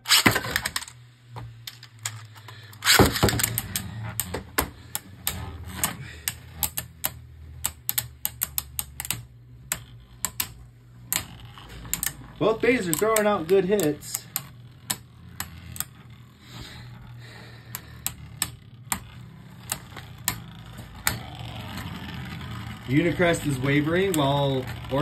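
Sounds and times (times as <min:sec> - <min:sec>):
ripcord launcher pull: 0:00.0 - 0:00.9, 0:02.8 - 0:04.3
spinning tops clacking together: 0:01.6 - 0:17.1, 0:17.7 - 0:25.0.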